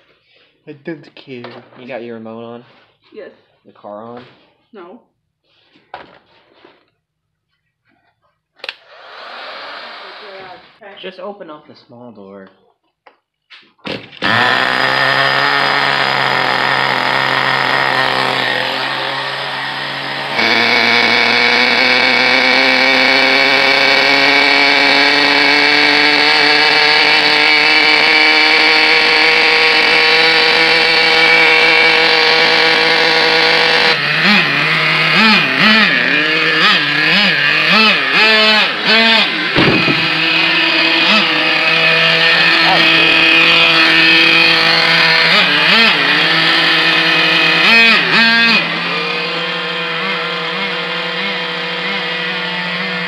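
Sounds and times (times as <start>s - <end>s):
small nitro engine revving: 8.6s - 10.8s, 13.9s - 53.0s.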